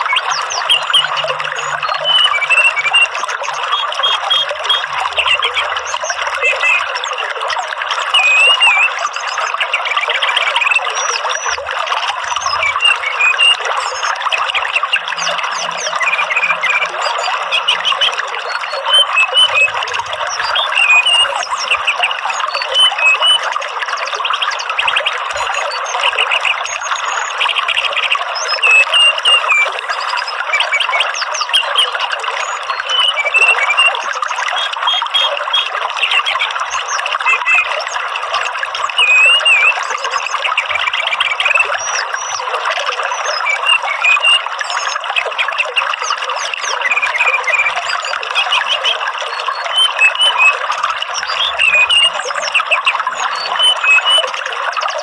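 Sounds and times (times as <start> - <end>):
bird chirps and whistles: 0.0 - 7.2, 8.1 - 11.6, 12.3 - 37.9, 38.9 - 42.5, 43.1 - 54.3
running water hiss: 29.1 - 30.6.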